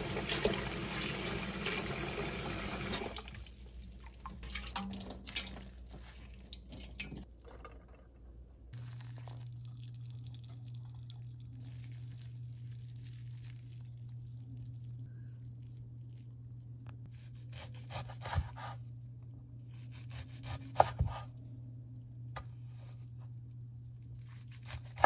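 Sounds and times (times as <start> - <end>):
water splashing and dripping: 0.0 - 7.3
low steady hum: 0.0 - 25.0.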